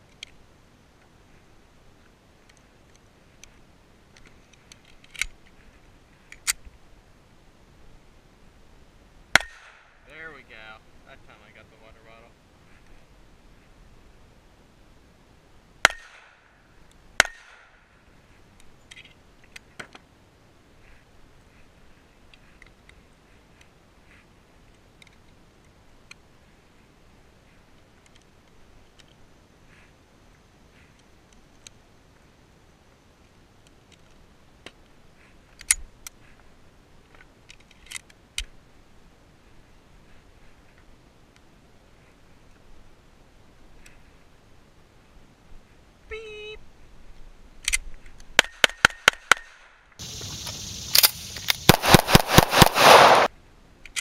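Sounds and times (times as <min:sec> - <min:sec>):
pistol shots: 0:09.4 - 0:10.0, 0:15.8 - 0:16.4, 0:17.2 - 0:17.8, 0:51.0 - 0:53.3.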